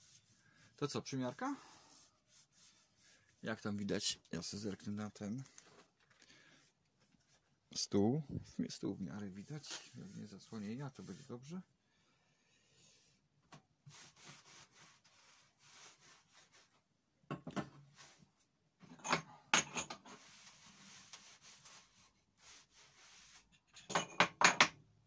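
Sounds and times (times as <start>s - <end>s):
cloth wiping wooden workbench: 0.0s - 4.8s, 8.6s - 11.5s, 13.9s - 16.8s, 18.0s - 18.3s, 20.1s - 23.5s.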